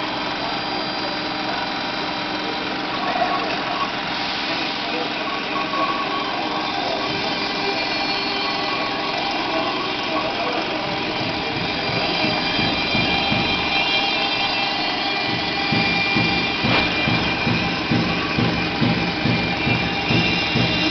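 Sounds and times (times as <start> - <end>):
router spindle high whine: 0.0 - 20.9
low rhythmic thumps: 10.6 - 20.9.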